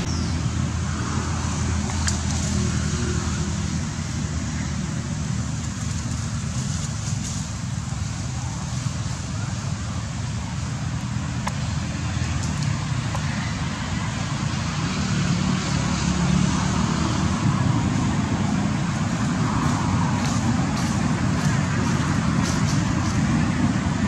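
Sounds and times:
road traffic rumble and hiss: 0.0 - 24.0.

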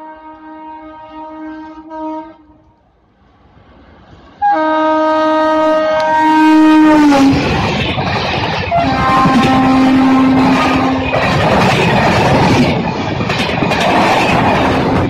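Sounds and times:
locomotive horn blast: 0.0 - 2.7, 4.4 - 7.4, 8.7 - 11.1
train coaches rushing rattle: 7.0 - 15.0.

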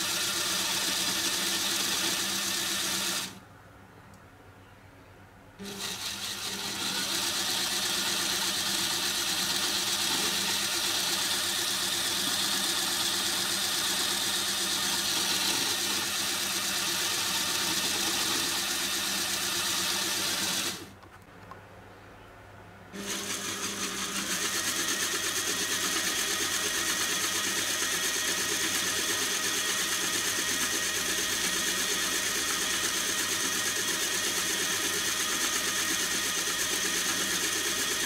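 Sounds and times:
electric motor whirring: 5.6 - 20.9, 23.0 - 38.0.

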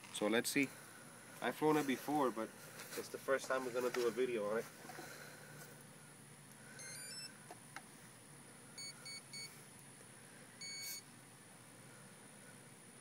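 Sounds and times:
electronic motor beeps: 6.8 - 7.3, 8.8 - 9.5, 10.6 - 11.1.

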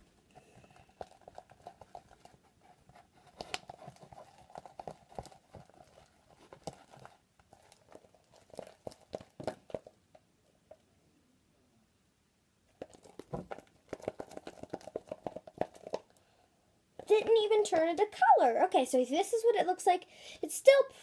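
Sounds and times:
slime squelching: 0.0 - 10.0.

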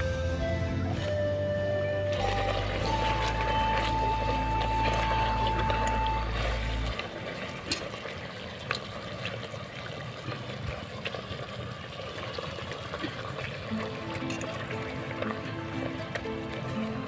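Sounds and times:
faint music: 0.0 - 8.3, 13.6 - 17.0
water bubbling in a pot: 2.2 - 17.0.

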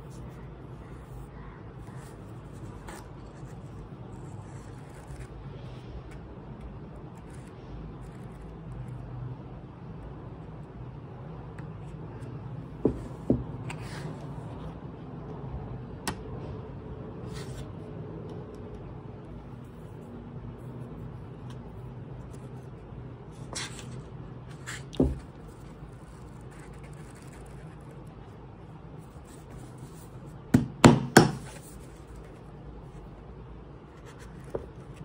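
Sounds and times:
book page and cover rustles: 23.4 - 28.0.

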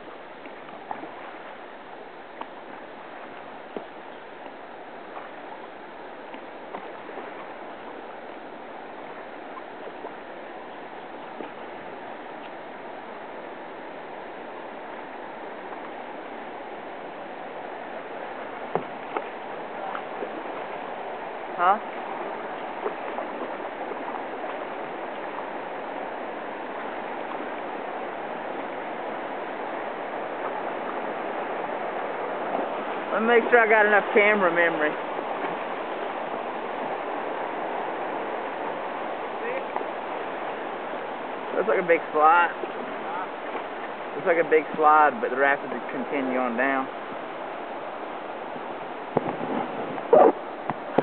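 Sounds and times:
faint water splashes: 0.0 - 51.0
river water rushing: 0.0 - 51.0
small water splashes and drips: 18.6 - 38.8.

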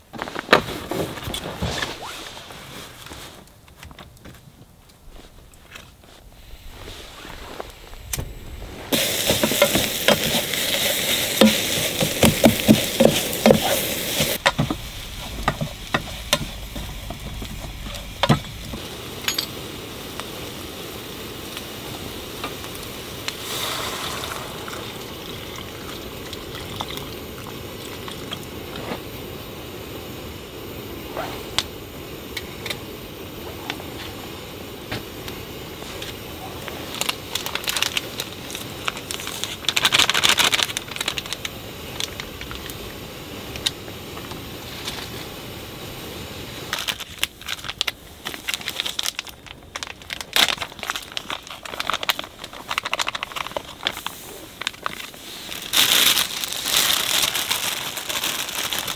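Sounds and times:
food sizzling in a pan: 8.6 - 29.8.

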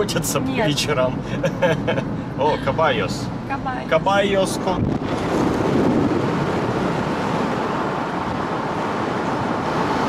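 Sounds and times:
road noise: 0.0 - 10.0
wind buffeting microphone: 4.4 - 10.0.

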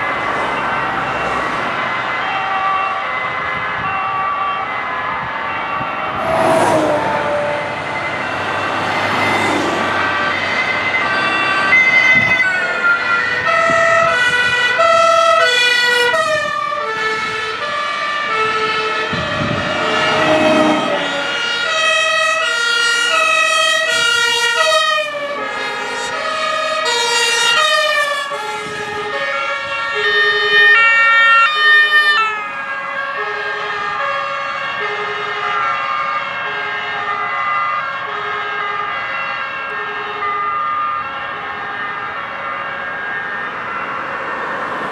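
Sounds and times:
two-tone emergency sirens: 0.0 - 44.9
vehicle rushing past: 5.8 - 11.5, 18.3 - 22.2.

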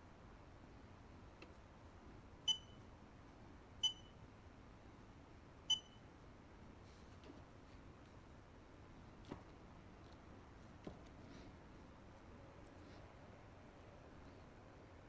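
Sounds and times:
fusion splicer short high beeps: 2.5 - 2.8, 3.8 - 4.2, 5.7 - 6.0.

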